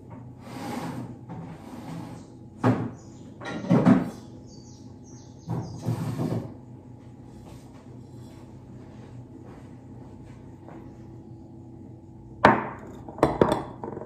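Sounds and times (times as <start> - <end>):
kitchen knocks and clatter: 2.6 - 4.2, 12.4 - 14.0.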